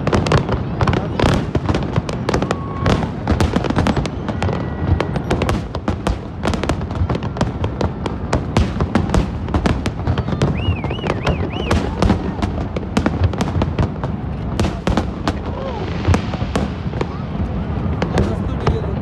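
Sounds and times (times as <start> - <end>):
fireworks bangs and crackles: 0.0 - 19.0
wavering firework whistle: 2.1 - 7.9, 9.8 - 12.8.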